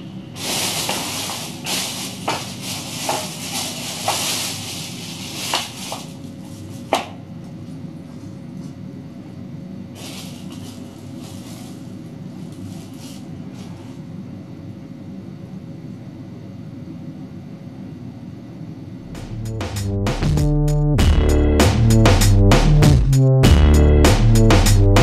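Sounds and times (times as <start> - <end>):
plastic bag rustling: 0.0 - 7.2, 9.9 - 14.0.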